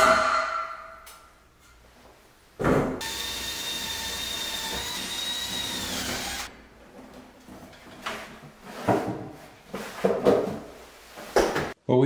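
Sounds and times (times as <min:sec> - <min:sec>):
cordless drill whirring: 0:03.0 - 0:06.5.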